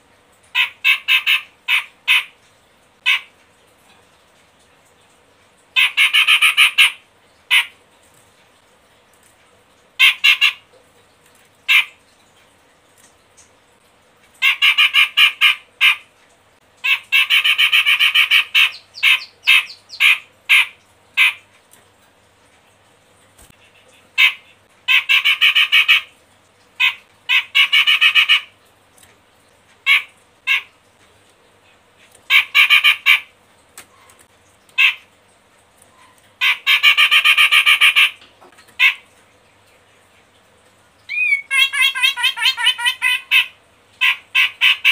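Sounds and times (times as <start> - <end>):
bird chattering in harsh bursts: 16.9 - 21.4.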